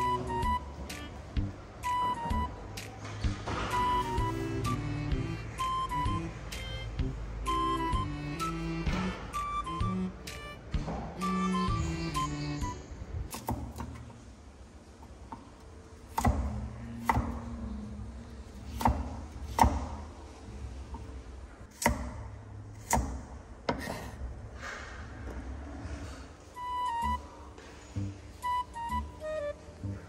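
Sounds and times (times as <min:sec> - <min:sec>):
knife chopping on cutting board: 0:13.3 - 0:14.0, 0:16.1 - 0:17.4, 0:18.7 - 0:20.1, 0:21.7 - 0:24.2.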